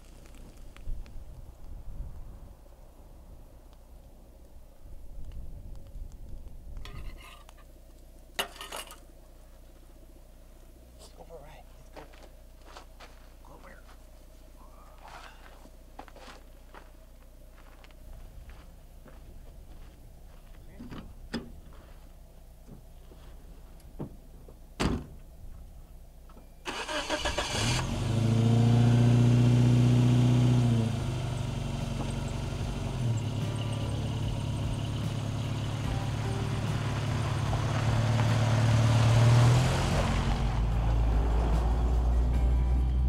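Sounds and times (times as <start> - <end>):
car engine revving and idling: 26.7 - 43.0.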